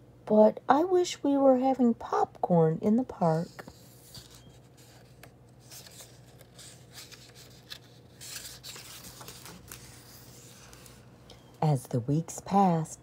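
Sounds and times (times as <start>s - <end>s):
book handling: 3.4s - 11.1s
page turning rustle: 3.6s - 11.1s.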